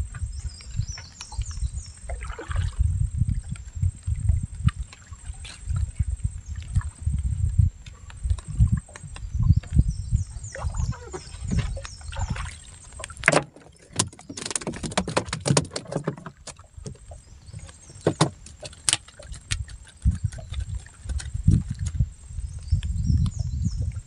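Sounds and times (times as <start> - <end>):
water slapping against canoe hull: 0.0 - 22.0
sharp clicks and knocks: 13.0 - 17.0.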